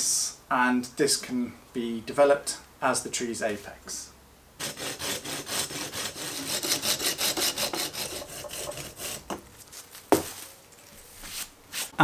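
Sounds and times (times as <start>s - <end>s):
pruning saw rasping through wood: 4.6s - 9.4s.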